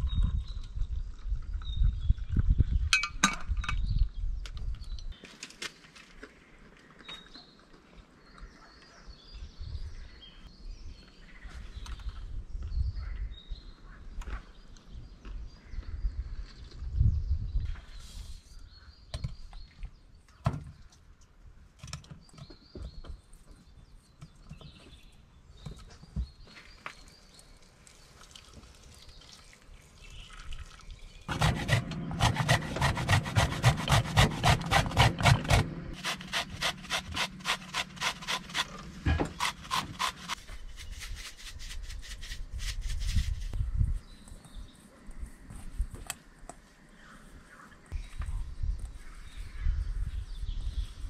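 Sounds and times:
rubbing or scraping strokes: 31.3s - 43.6s.

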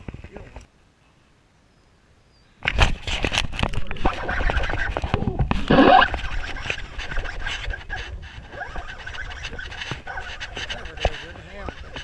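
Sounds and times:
hands rubbing against camera: 2.7s - 12.0s
loud scrape: 2.8s - 12.0s.

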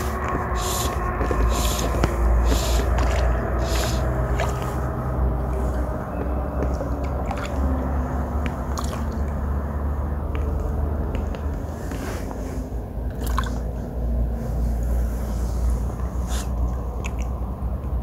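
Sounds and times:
fly line hissing swishes: 0.0s - 4.9s
steady low rumble: 0.0s - 18.0s.

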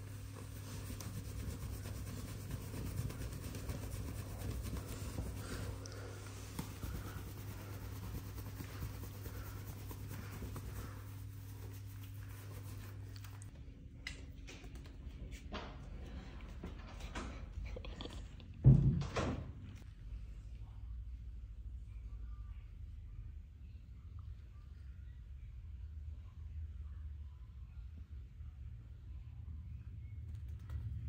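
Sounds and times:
towel rubbing wet fur: 0.0s - 13.5s
steady low hum: 0.0s - 31.0s.

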